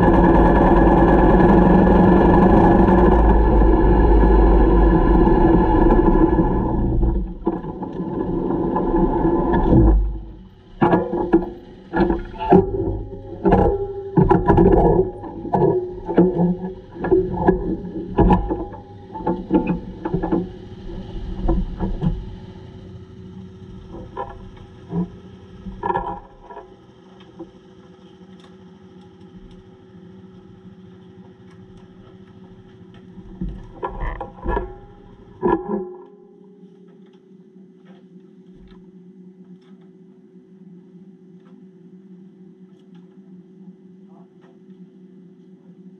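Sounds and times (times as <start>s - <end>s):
motorcycle engine running: 0.0s - 35.4s.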